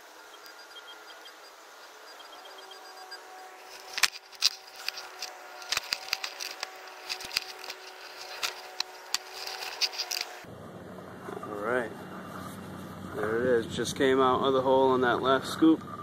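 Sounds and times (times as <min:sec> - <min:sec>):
shovel scraping into soil: 0:03.4 - 0:10.4.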